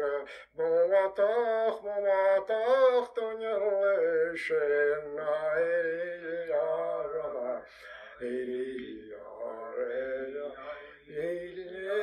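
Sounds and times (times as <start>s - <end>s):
man singing unaccompanied: 0.0s - 12.0s
man breathing: 7.6s - 8.2s.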